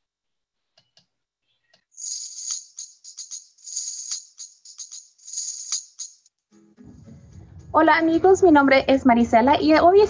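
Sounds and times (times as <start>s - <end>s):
rhythmic shaker music: 2.0s - 6.2s.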